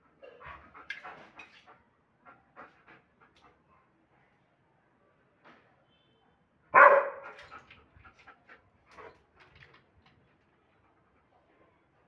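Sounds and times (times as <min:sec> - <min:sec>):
dog barking: 0:06.7 - 0:07.4.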